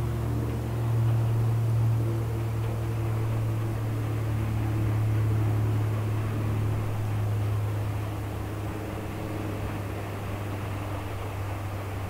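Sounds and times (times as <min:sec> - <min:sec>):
low engine drone: 0:00.0 - 0:12.0.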